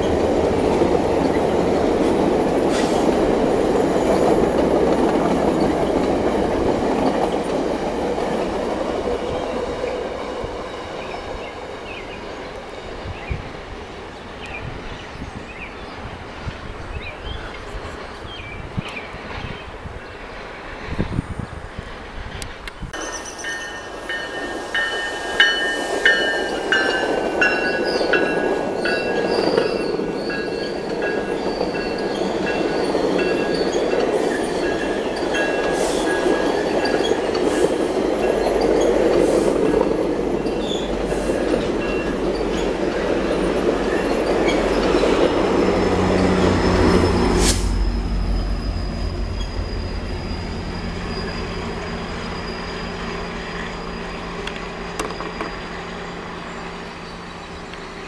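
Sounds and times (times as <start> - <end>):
diesel locomotive engine drone: 0.0 - 58.0
train wheels rumbling on rails: 0.0 - 58.0
wheel squeal: 23.0 - 25.7, 43.9 - 58.0.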